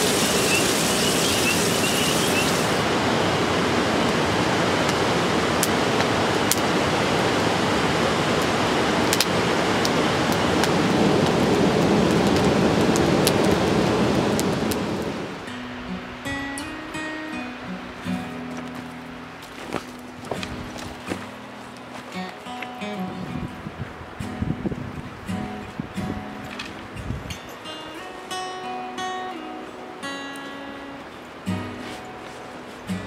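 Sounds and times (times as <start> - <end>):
fish frying in a pan: 0.0 - 2.8
campfire crackling and popping: 0.0 - 2.9, 4.0 - 16.3, 17.3 - 28.6
river rapids rushing: 0.0 - 33.0.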